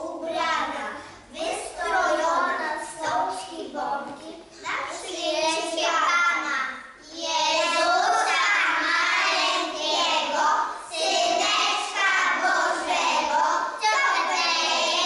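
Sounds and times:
children singing a carol: 7.1 - 15.0.

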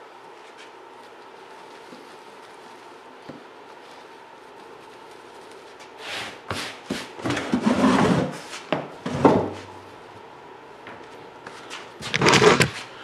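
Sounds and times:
duck skin rustling and rubbing: 0.3 - 7.2.

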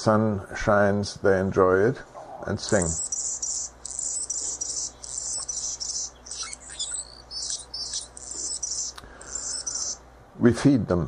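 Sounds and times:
hummingbird singing: 2.3 - 10.0.

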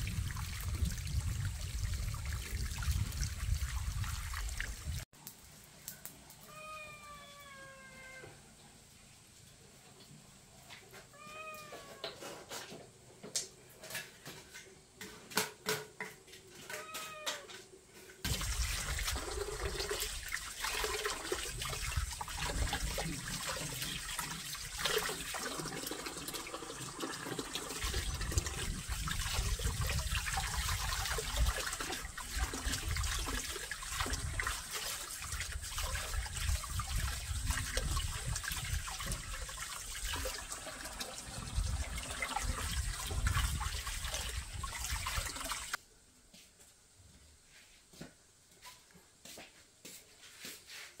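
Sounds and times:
water pouring into plastic basin: 0.0 - 5.0, 18.2 - 45.8
cat meowing: 6.4 - 8.4, 11.1 - 12.2, 16.7 - 17.6
hands rinsing leafy greens: 18.3 - 45.8.

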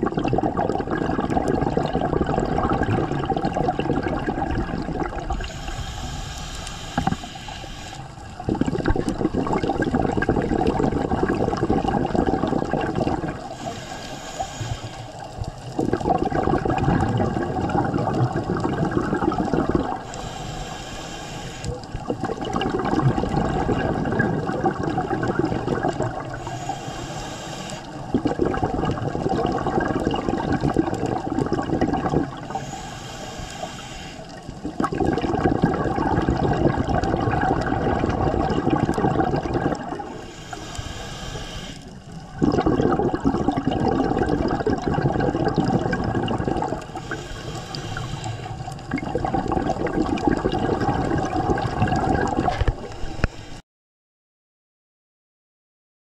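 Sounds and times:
bubbling exhalations underwater: 0.0 - 6.0, 6.9 - 7.3, 8.2 - 20.4, 21.7 - 26.7, 27.9 - 32.8, 34.4 - 40.4, 42.1 - 53.3
hissing regulator inhalations: 5.2 - 9.3, 12.6 - 15.8, 19.7 - 22.2, 25.6 - 28.5, 31.7 - 34.8, 39.7 - 42.4, 46.8 - 49.0, 52.5 - 53.6.

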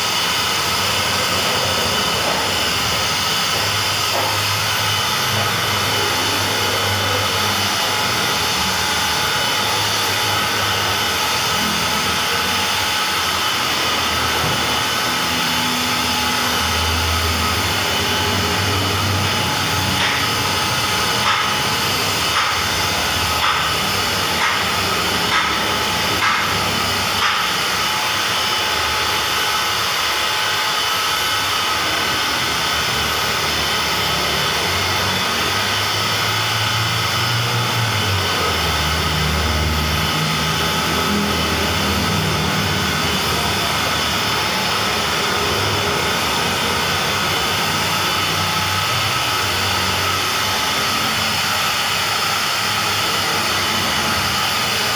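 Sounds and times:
electric car polisher running: 0.0 - 54.9.

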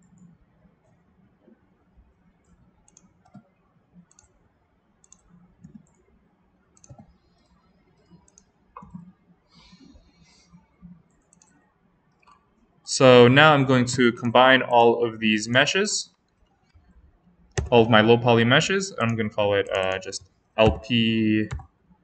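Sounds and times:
mouse and keyboard clicking: 2.4 - 4.4, 5.0 - 6.1, 6.8 - 9.1, 11.0 - 11.6.

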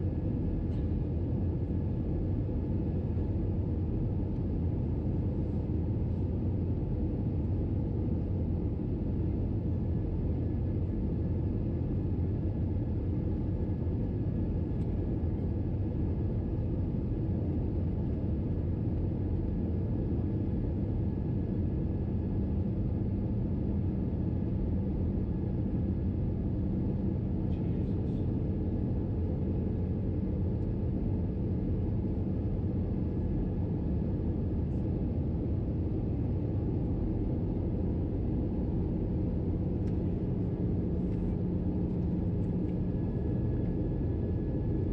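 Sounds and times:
airplane cabin rumble: 0.0 - 44.9.

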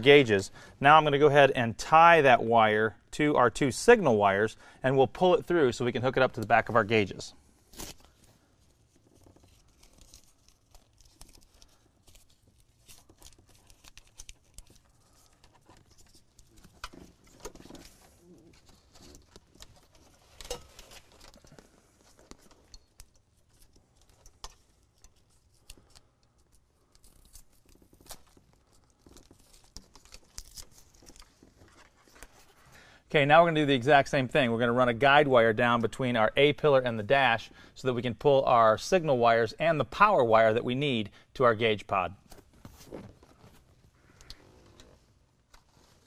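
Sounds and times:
wires rustling and clicking: 7.8 - 32.8.

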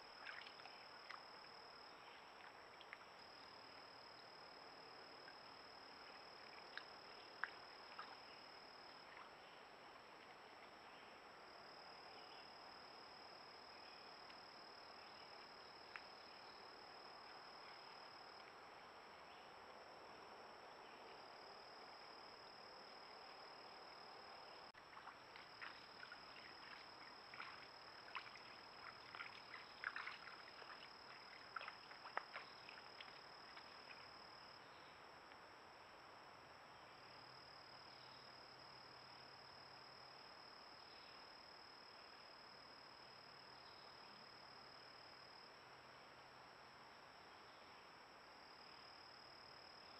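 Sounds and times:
insects trilling: 20.8 - 34.9.

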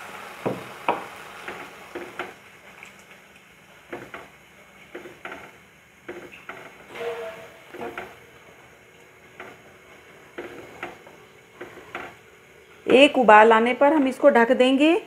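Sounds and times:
spoon knocking and scraping pan: 4.9 - 8.2, 10.4 - 12.2.

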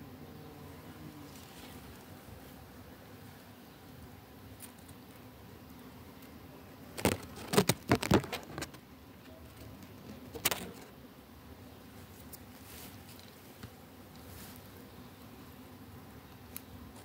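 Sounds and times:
faint steady hiss: 0.0 - 17.0
rustling: 0.8 - 2.6, 6.9 - 11.0, 11.9 - 14.8.

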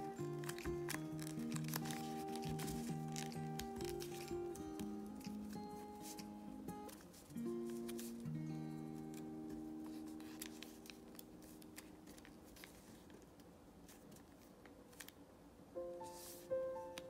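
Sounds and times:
paper creasing crackles: 0.0 - 8.4, 9.0 - 15.2
background music: 0.0 - 11.9.

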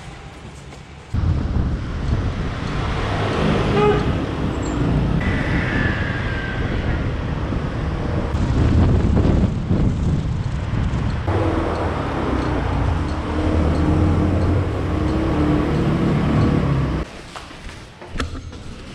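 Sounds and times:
street traffic noise: 0.0 - 18.1
low rumble: 1.2 - 15.8
falling whine: 4.6 - 9.0.

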